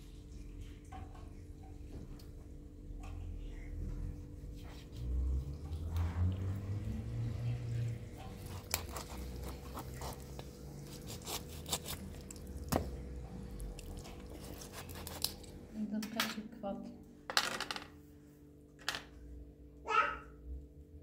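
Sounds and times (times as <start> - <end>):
faint hum and low rumbling: 0.0 - 21.0
objects clicking and knocking: 17.3 - 18.0.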